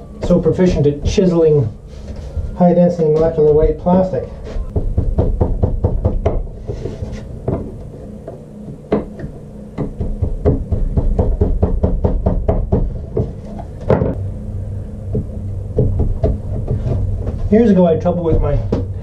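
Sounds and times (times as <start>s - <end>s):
dull knocks of chisel: 4.7s - 6.8s.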